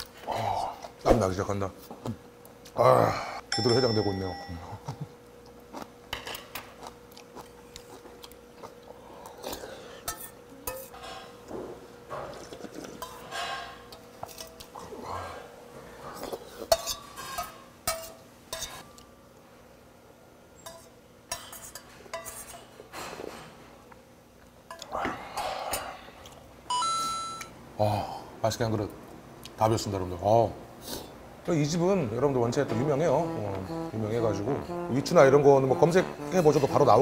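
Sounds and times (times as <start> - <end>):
person chewing: 5.2 - 10.0.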